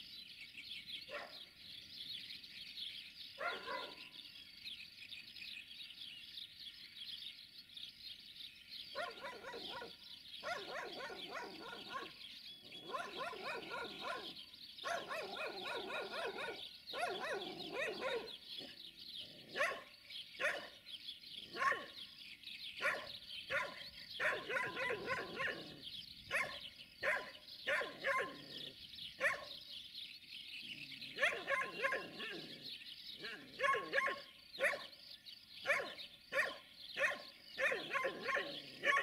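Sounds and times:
dog barking: 0:01.1 - 0:01.4, 0:03.4 - 0:04.0, 0:09.0 - 0:12.2, 0:12.8 - 0:18.8, 0:19.5 - 0:20.8, 0:21.5 - 0:22.0, 0:22.8 - 0:28.6, 0:29.2 - 0:29.6, 0:31.2 - 0:32.6, 0:33.2 - 0:34.9, 0:35.6 - 0:39.0.

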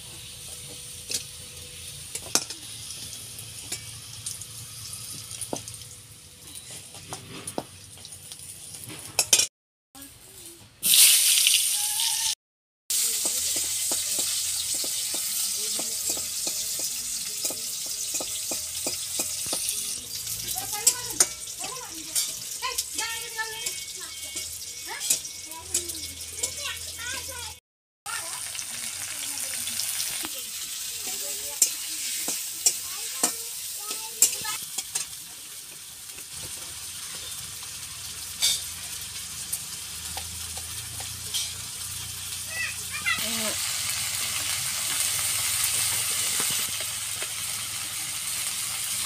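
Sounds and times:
food sizzling in oil: 0:00.0 - 0:49.0
metal spatula scraping pan: 0:13.2 - 0:26.9, 0:38.4 - 0:38.8, 0:40.5 - 0:41.7.

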